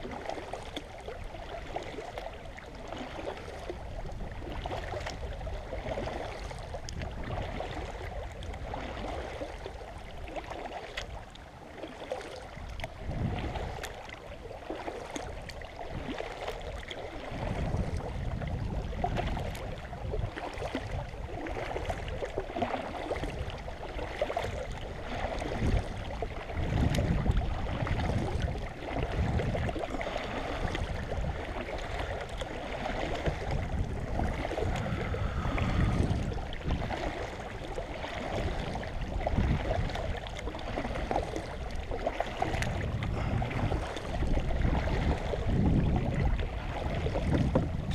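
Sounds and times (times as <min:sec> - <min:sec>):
paddle splashing in water: 0:00.0 - 0:47.9
water running along hull: 0:00.0 - 0:47.9
low rumble: 0:33.4 - 0:37.2, 0:42.6 - 0:44.8.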